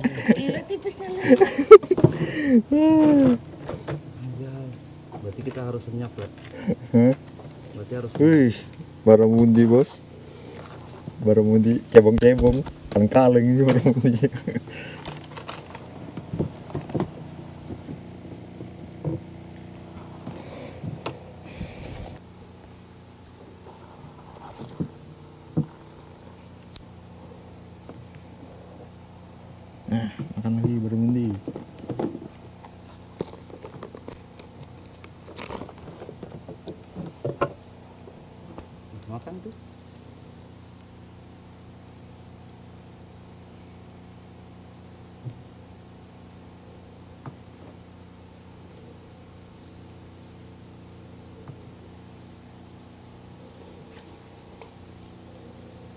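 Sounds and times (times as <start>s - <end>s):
insects chorus: 0.0s - 55.9s
person's voice: 0.2s - 1.5s, 2.3s - 3.4s.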